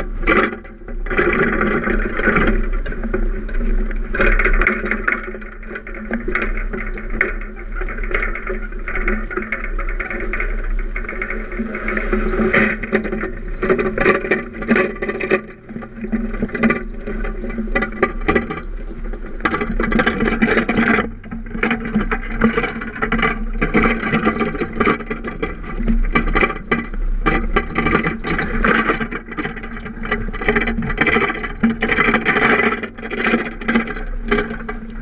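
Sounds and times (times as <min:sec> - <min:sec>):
vehicle rattling: 0:00.0 - 0:35.0
wind buffeting microphone: 0:06.2 - 0:21.8
road noise: 0:10.2 - 0:15.0.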